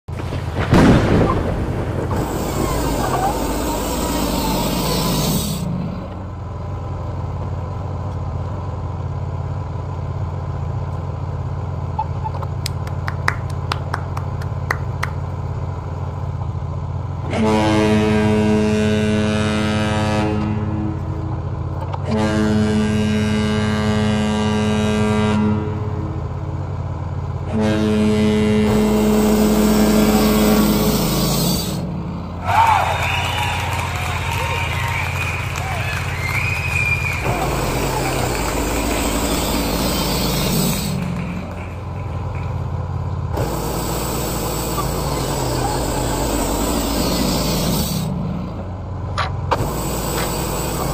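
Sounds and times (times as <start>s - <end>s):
band sawmill engine humming: 0.0s - 50.9s
saw whine: 2.1s - 6.3s, 28.6s - 42.6s, 43.3s - 48.8s, 49.5s - 50.9s.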